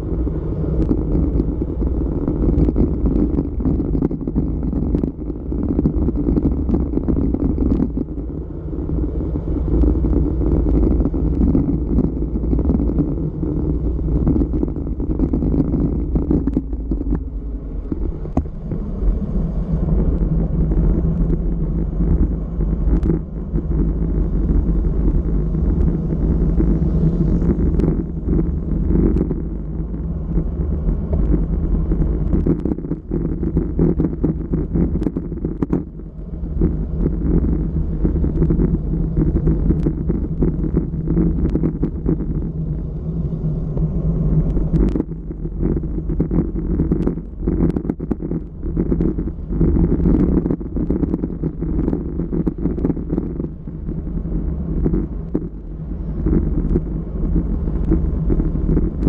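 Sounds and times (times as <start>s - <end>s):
wind buffeting microphone: 0.0s - 59.0s
scattered clicks: 14.2s - 18.5s, 20.0s - 42.5s, 43.7s - 55.6s, 56.2s - 59.0s.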